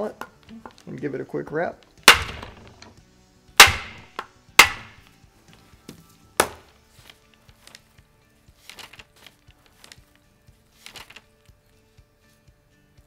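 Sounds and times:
mallet rapping a rifle: 2.1 - 2.8, 3.6 - 5.0.

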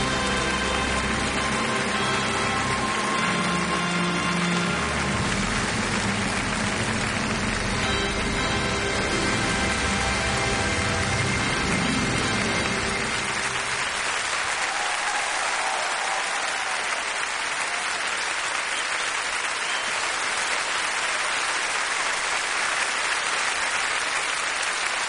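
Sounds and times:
music: 0.0 - 15.7
audience applauding: 0.0 - 25.0.

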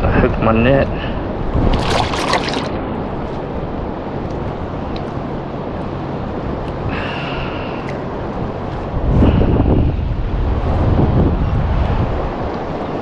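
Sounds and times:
surf: 0.0 - 13.0
wind: 0.0 - 13.0
low motor hum: 1.2 - 13.0
fish splashing at surface: 1.6 - 2.7.

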